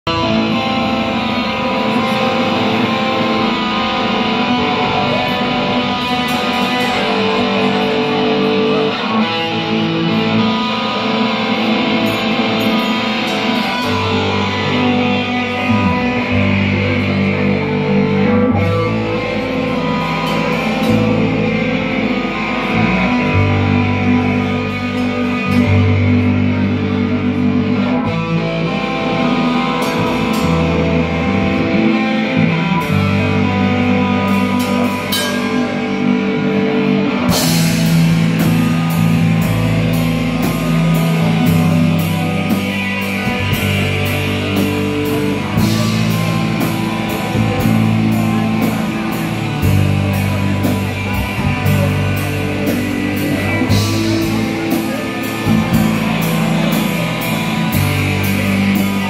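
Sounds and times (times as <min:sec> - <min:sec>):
bass guitar: 0:00.0 - 0:59.0
distorted electric guitars: 0:00.0 - 0:59.0
drum kit: 0:00.0 - 0:59.0
cymbals striking: 0:34.4 - 0:36.6.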